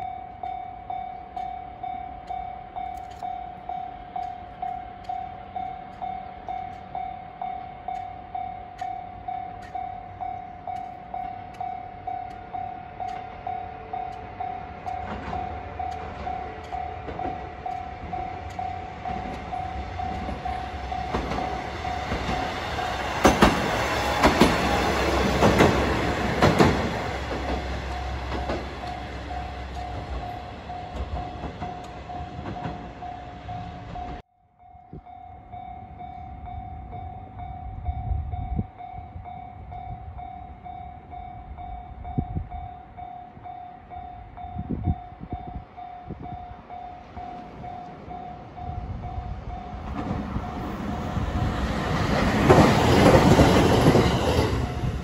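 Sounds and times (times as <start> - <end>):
diesel railcar engine rumble: 0.0 - 55.0
wheels clacking over rail joints: 2.2 - 34.2, 49.3 - 55.0.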